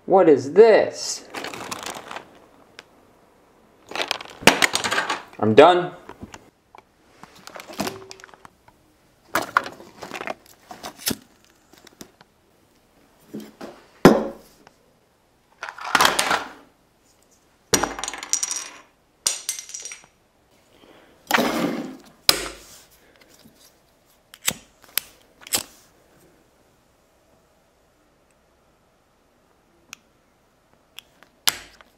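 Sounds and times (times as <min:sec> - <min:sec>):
hard objects dropped on wooden table: 0:03.9 - 0:05.4, 0:13.6 - 0:14.4, 0:15.6 - 0:16.6, 0:17.8 - 0:20.1.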